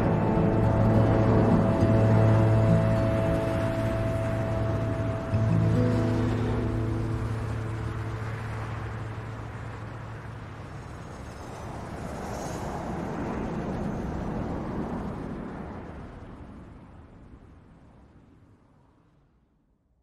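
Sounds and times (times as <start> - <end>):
held orchestral chord: 0.0 - 10.6
distant city traffic: 0.0 - 16.9.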